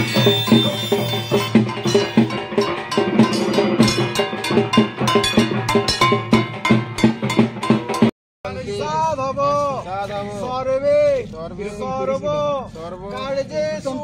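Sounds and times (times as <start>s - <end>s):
drumming: 0.0s - 8.1s
metal gongs struck in beat: 0.0s - 8.1s.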